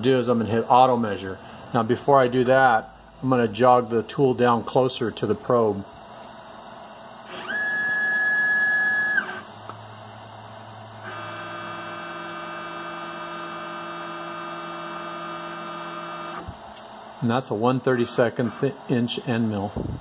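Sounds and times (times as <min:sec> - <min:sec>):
drive motor whining: 0:07.0 - 0:16.9.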